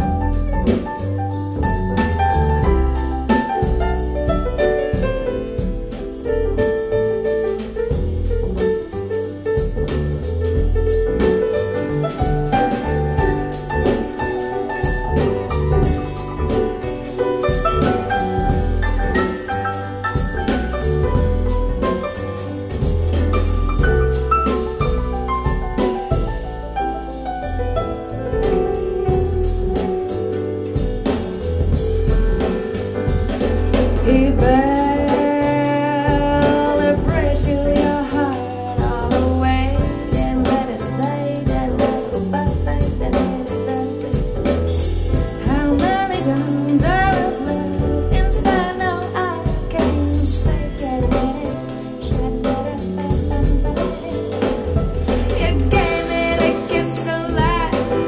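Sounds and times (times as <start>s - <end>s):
band playing: 0.0s - 37.2s, 50.7s - 58.0s
woman singing: 34.0s - 58.0s.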